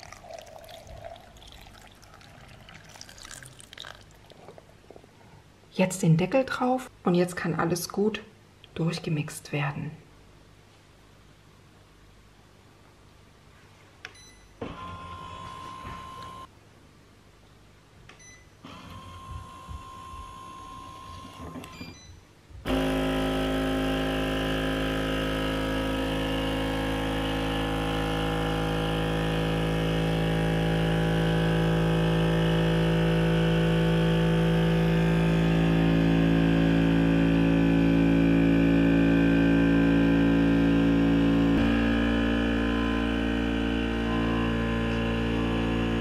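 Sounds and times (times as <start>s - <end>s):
vacuum pump humming: 0.0s - 4.6s, 22.7s - 46.0s.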